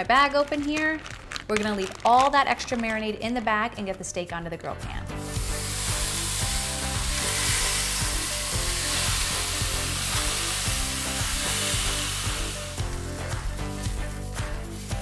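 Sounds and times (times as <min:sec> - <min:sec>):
steak sizzling on a grill pan: 0:05.2 - 0:14.1.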